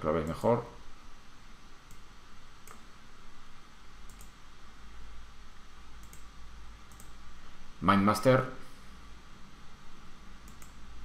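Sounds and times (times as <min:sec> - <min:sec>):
faint steady hiss: 0:00.0 - 0:11.0
computer mouse clicks: 0:01.8 - 0:02.9, 0:04.0 - 0:04.4, 0:06.0 - 0:06.3, 0:06.9 - 0:07.2, 0:10.4 - 0:10.8.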